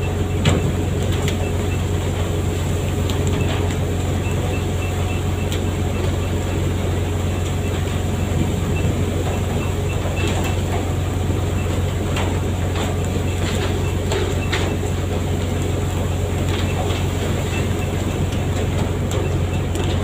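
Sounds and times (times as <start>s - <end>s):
boat engine drone: 0.0s - 20.0s.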